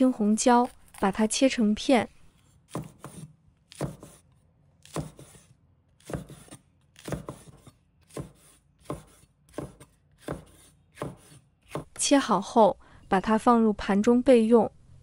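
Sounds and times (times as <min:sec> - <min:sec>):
knife chopping on wooden board: 0:02.7 - 0:04.2, 0:04.8 - 0:12.0.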